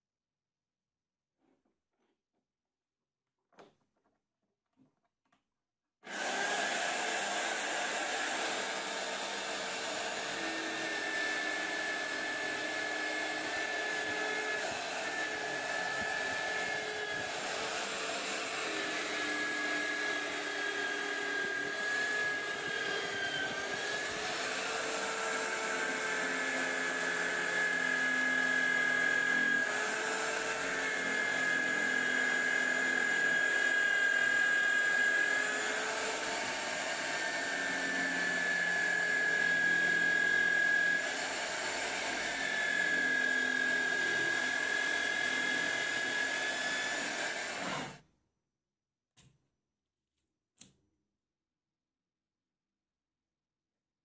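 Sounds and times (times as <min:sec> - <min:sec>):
electric drill whining: 0:06.0 - 0:48.0.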